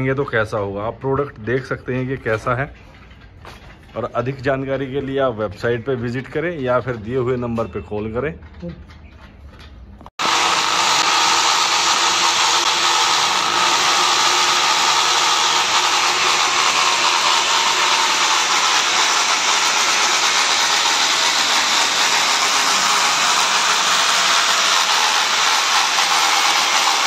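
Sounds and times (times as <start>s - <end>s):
electric drill boring into masonry: 10.2s - 27.0s.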